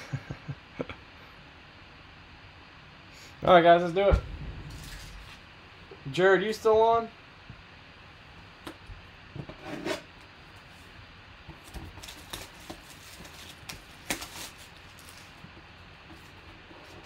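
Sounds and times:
cardboard scraping and rubbing: 9.4 - 10.1.

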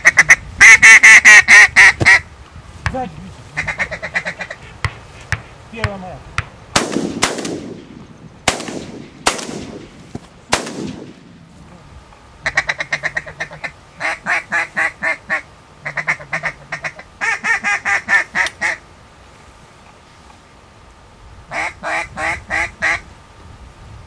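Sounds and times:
duck call quacks: 0.0 - 2.2, 3.5 - 4.6, 12.4 - 18.8, 21.5 - 23.0
shotgun shots with echo: 6.8 - 11.3.

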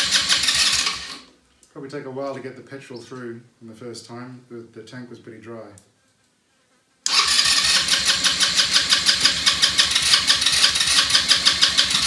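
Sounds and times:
engine cranking on electric starter: 0.0 - 1.3, 7.1 - 12.0.

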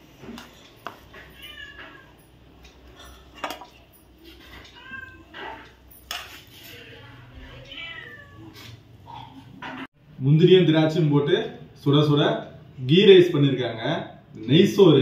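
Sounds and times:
cat meowing: 1.4 - 2.2, 4.6 - 5.6, 7.0 - 8.7.

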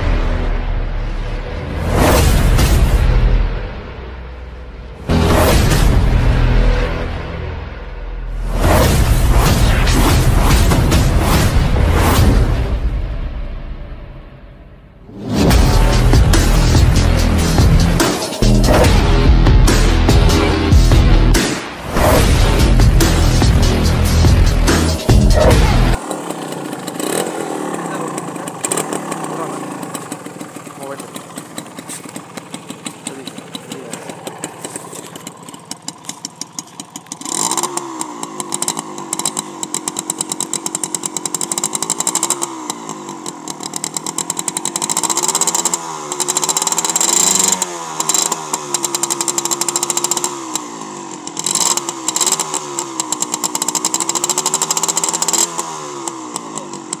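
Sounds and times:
motorcycle engine idling and revving: 0.0 - 57.0.

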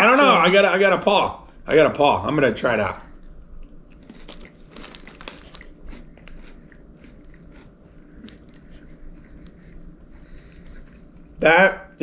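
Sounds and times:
cracker crunching while chewed: 3.1 - 11.4.

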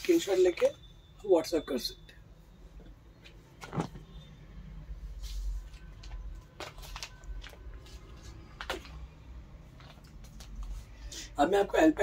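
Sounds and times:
plastic packaging crinkling: 6.0 - 7.8.

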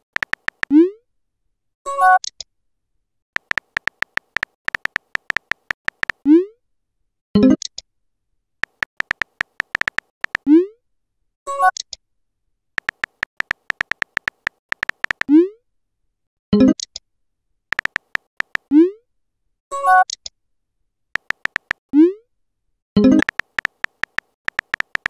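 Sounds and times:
phone keyboard typing clicks: 0.0 - 0.7, 3.4 - 6.2, 8.6 - 10.5, 12.8 - 15.3, 17.7 - 18.7, 21.2 - 21.8, 23.0 - 25.0.

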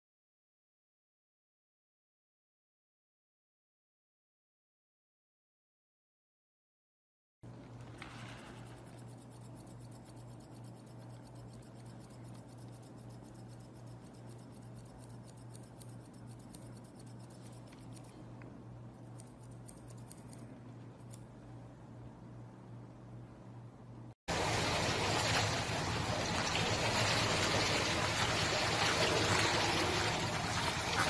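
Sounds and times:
faint low hum: 7.5 - 24.2
scissors snipping fur: 8.0 - 21.4.

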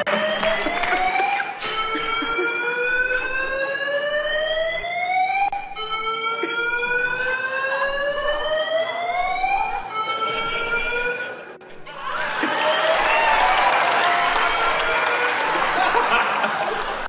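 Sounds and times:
alarm rising whoop: 0.0 - 17.0.

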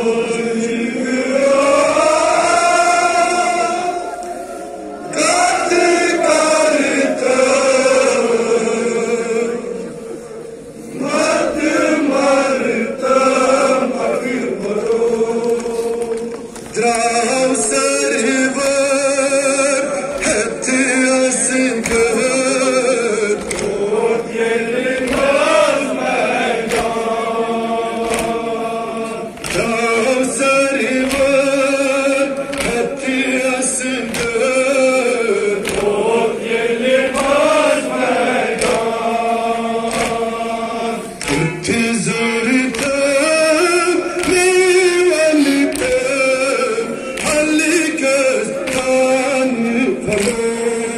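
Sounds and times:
men chanting in chorus: 0.0 - 50.9
hands slapping chests: 23.4 - 23.8, 24.9 - 25.4, 26.6 - 27.0, 28.0 - 28.4, 29.4 - 29.8, 31.0 - 31.4, 32.4 - 32.9, 34.0 - 34.5, 35.6 - 36.0, 38.5 - 38.9, 39.8 - 40.3, 41.2 - 41.5, 42.7 - 43.0, 45.7 - 46.1, 48.6 - 49.0, 50.1 - 50.5.

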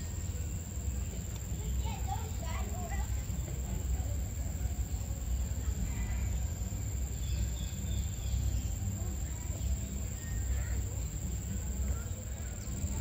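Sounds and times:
steady low rumble: 0.0 - 13.0
faint high-pitched chirps: 4.9 - 13.0.

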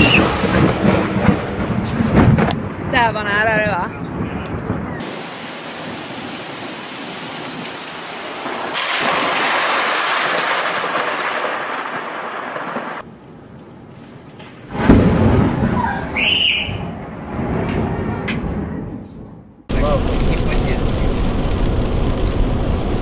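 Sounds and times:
sharp thunderclap: 0.0 - 13.0, 14.7 - 18.7, 19.7 - 23.0
thunder rumbling: 0.0 - 13.1, 14.7 - 23.0
rain hissing: 4.5 - 13.1, 19.7 - 23.0.

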